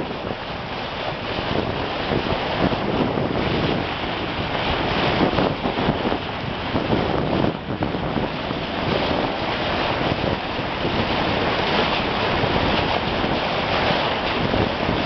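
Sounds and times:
water rushing against boat hull: 0.0s - 15.0s
wind buffeting microphone: 0.0s - 15.0s.

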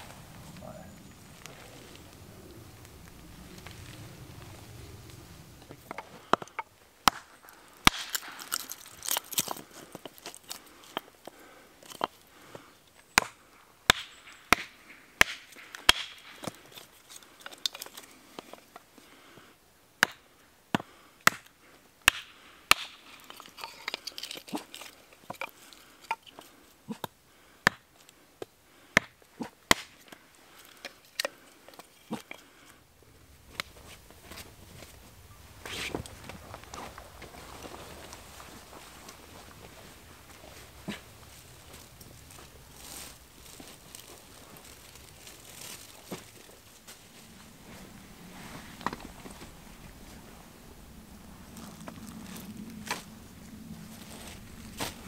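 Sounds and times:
hatchet chopping wood: 5.9s - 10.2s, 13.1s - 16.6s, 20.0s - 24.0s, 27.0s - 27.9s, 28.9s - 30.2s.

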